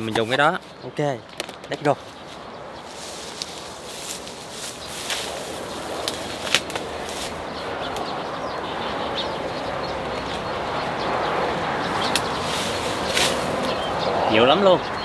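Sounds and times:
branches and leaves rustling: 0.0 - 14.5
branch snapping: 6.0 - 6.9.

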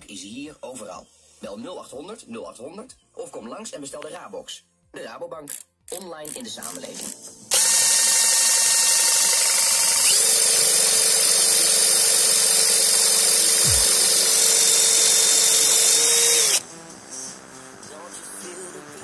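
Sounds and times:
cordless drill whirring: 7.5 - 16.6.

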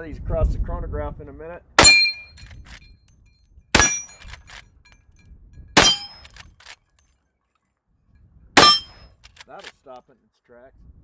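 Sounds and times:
steel target ringing: 1.8 - 2.4, 3.8 - 4.2, 5.8 - 6.3, 8.6 - 9.2
rifle shots: 3.8 - 4.6, 5.8 - 6.7, 8.6 - 9.3.

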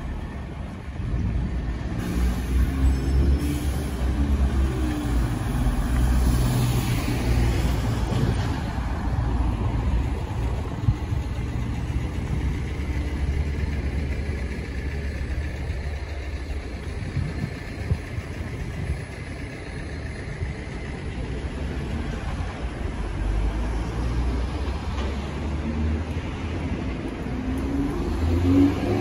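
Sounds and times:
bus engine rumbling: 0.0 - 29.0.

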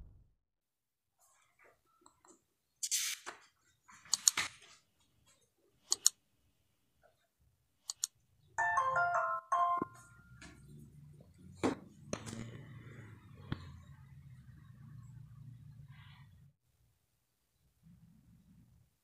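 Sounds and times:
mouse clicks: 7.8 - 8.2.

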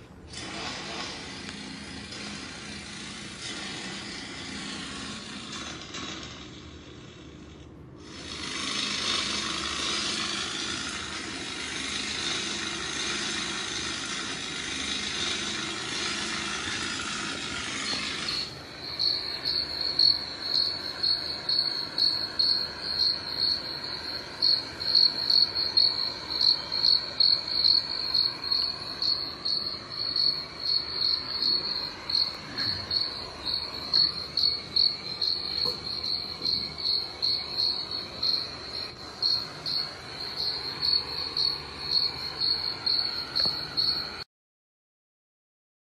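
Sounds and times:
cricket chirping trill: 18.2 - 44.2.

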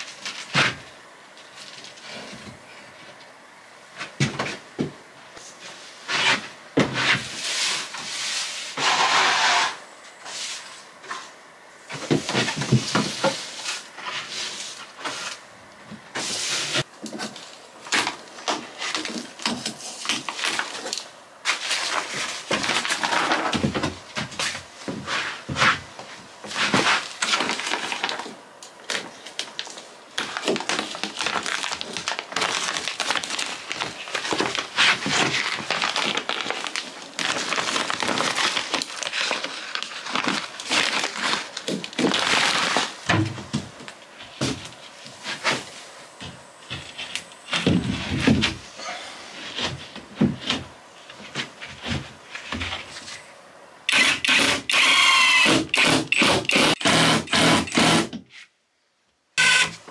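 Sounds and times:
plastic sheeting crinkling: 16.2 - 23.7, 26.4 - 48.7
impact driver driving screw: 53.9 - 58.1, 59.4 - 59.7.

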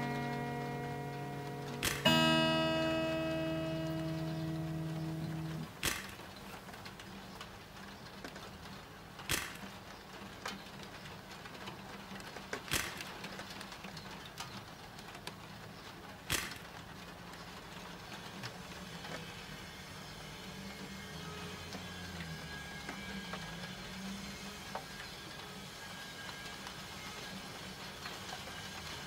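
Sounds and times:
soft hiss of rain: 0.0 - 29.0
sharp camera shutter clicks: 1.7 - 2.1, 5.4 - 6.2, 9.3 - 9.7, 12.7 - 13.1, 16.3 - 16.7.

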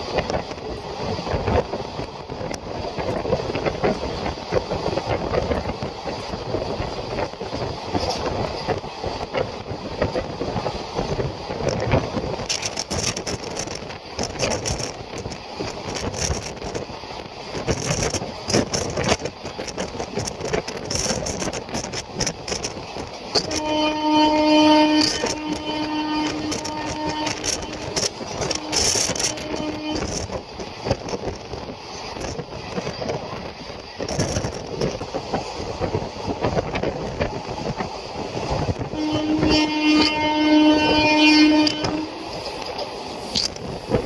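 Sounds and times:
wheels clicking and clattering: 0.0 - 23.7, 24.9 - 38.9
train coach rattle: 0.0 - 44.0
train wheels rumbling on rails: 0.0 - 44.0
wind: 0.0 - 44.0
train horn: 23.3 - 30.4, 38.9 - 42.6.

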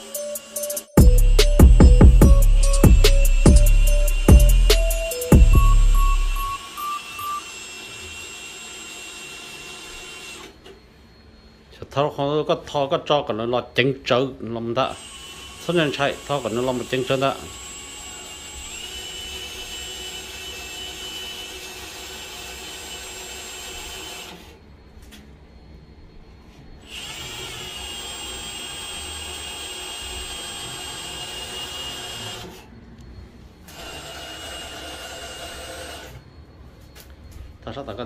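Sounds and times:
cordless drill whining: 0.0 - 10.7, 14.8 - 24.6, 26.8 - 32.7, 33.6 - 36.2.

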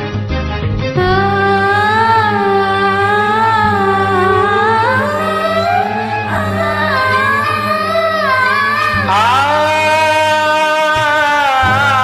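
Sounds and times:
karaoke backing track: 0.0 - 12.0
woman singing: 1.0 - 10.2.

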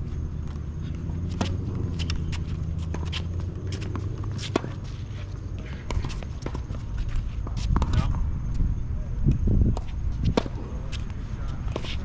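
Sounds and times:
scuffing footsteps: 0.0 - 7.8
steady low hum: 0.0 - 12.0
tennis ball bouncing: 0.1 - 8.3, 9.7 - 11.1
racket hitting ball: 0.6 - 8.2, 9.7 - 11.0.

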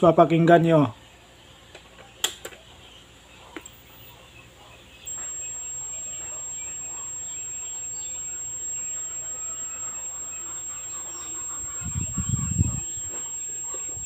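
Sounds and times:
faint birds chirping: 0.0 - 14.0
high-pitched television whistle: 5.1 - 14.0.

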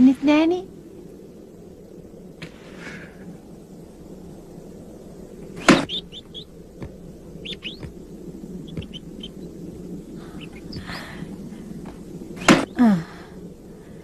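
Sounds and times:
steady low hum: 0.0 - 14.0
bird chirps: 5.5 - 6.5, 7.4 - 11.6.

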